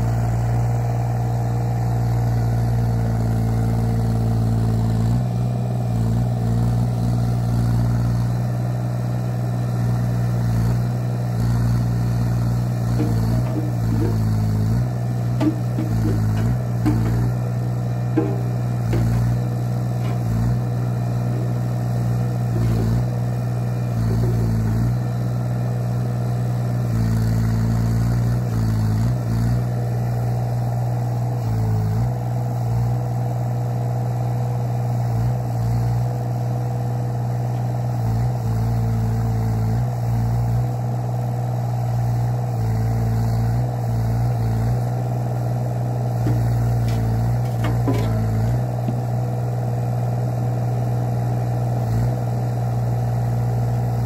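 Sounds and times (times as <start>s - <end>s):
excavator diesel engine running: 0.0s - 54.0s
sharp knocks: 12.9s - 20.6s, 46.2s - 49.1s.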